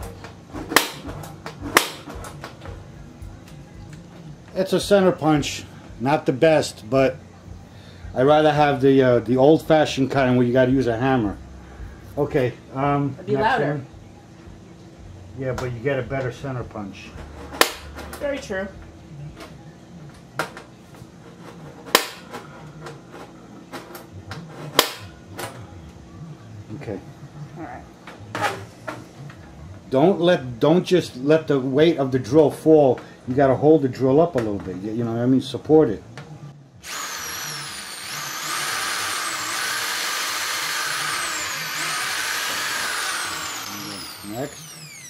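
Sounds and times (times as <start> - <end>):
center punch snapping into metal: 1.7 - 2.1, 17.6 - 17.9, 21.9 - 22.3, 24.8 - 25.6
power drill motor whine: 36.8 - 45.0.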